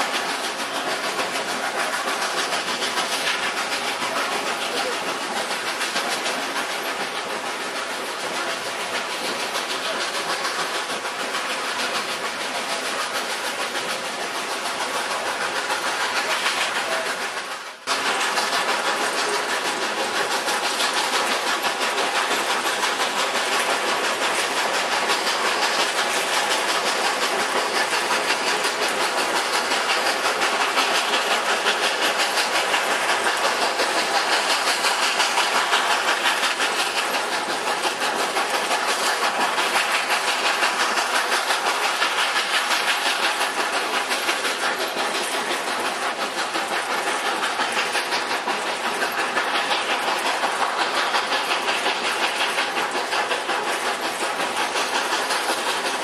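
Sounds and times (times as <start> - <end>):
steam locomotive working: 0.0 - 56.0
train wheels clattering on rails: 0.0 - 56.0.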